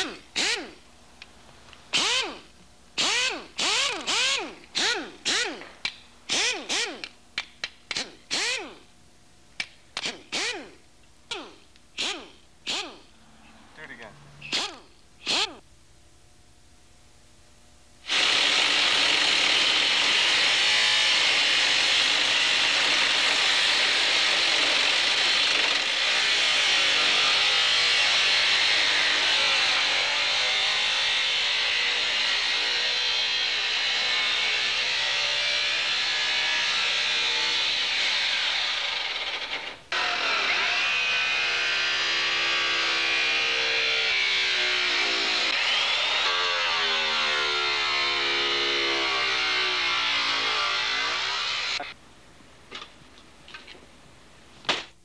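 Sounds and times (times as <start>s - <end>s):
angle grinder cutting metal: 18.1s - 52.0s.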